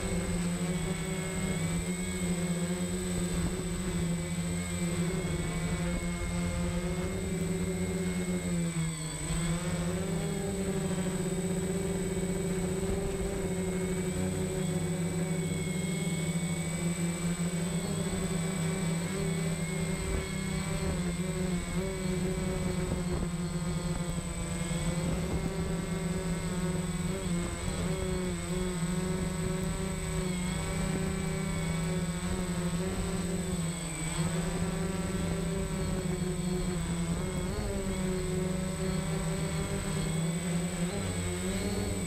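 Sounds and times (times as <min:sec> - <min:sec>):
drone motors whining: 0:00.0 - 0:42.0.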